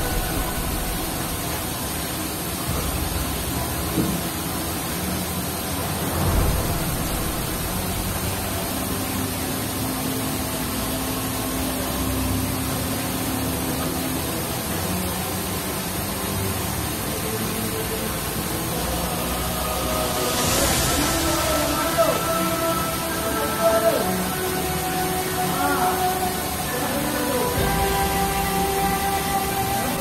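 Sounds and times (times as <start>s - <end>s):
low machinery hum: 0.0s - 30.0s
water spray rushing: 0.0s - 30.0s
thump: 3.9s - 4.2s.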